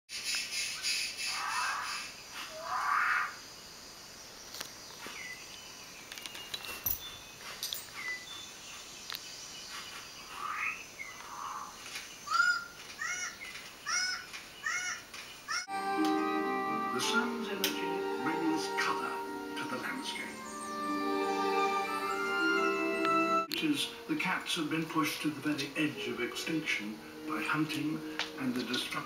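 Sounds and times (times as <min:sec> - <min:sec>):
birds calling through tv speakers: 0:00.2 - 0:03.4, 0:08.0 - 0:15.7, 0:16.9 - 0:22.8.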